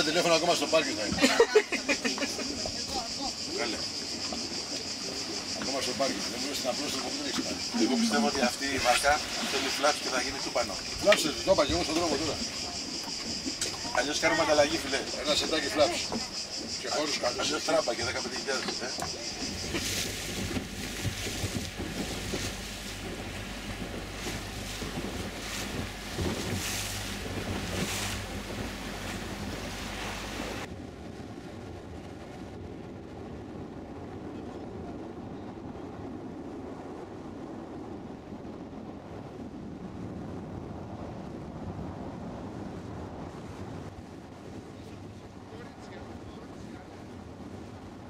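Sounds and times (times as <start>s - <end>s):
boat engine hum: 0.0s - 31.8s
water rushing along hull: 0.0s - 48.0s
wind buffeting microphone: 0.0s - 48.0s.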